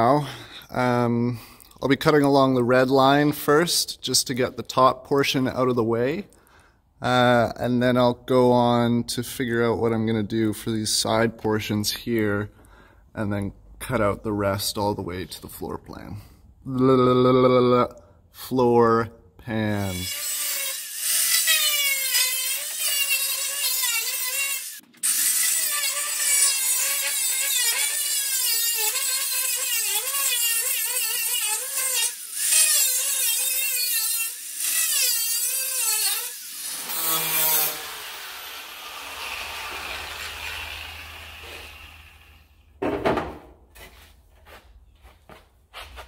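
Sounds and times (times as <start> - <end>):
angle grinder cutting sheet steel: 19.8 - 42.8.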